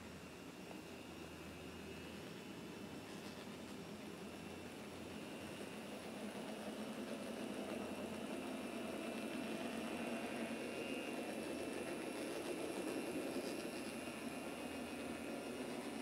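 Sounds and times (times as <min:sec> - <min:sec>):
model train motor whirring: 0:01.8 - 0:16.0
small wheels running on track: 0:02.4 - 0:16.0.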